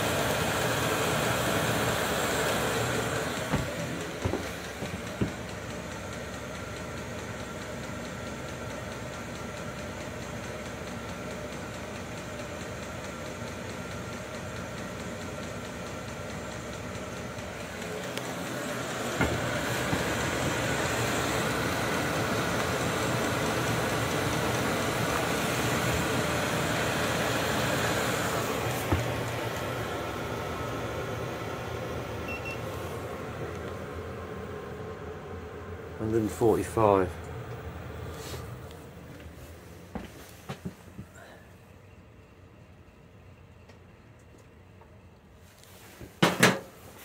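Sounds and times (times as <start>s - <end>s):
air heater blower whirring: 0.0s - 47.0s
heater click: 17.8s - 31.0s, 32.2s - 34.8s, 36.0s - 39.4s.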